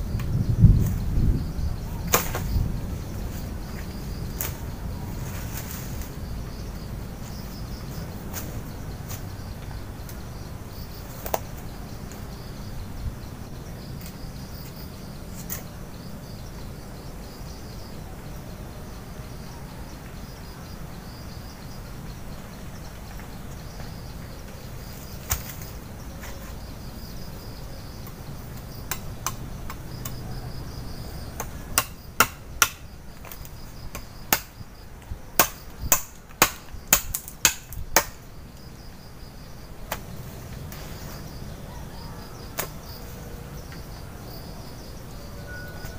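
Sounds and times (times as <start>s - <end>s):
insects chirping: 0.0s - 45.9s
blade chopping wooden pole: 35.4s - 38.2s.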